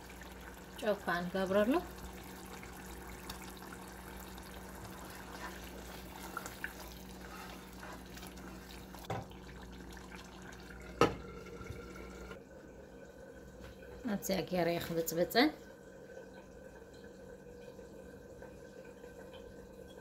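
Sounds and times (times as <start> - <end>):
stew simmering and bubbling: 0.0 - 20.0
wooden spoon stirring: 4.5 - 9.3.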